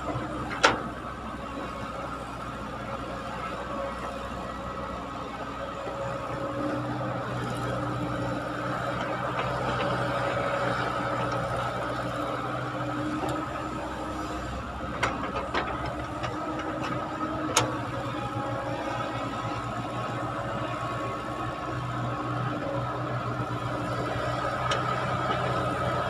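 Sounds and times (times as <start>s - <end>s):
excavator diesel engine running: 0.0s - 26.0s.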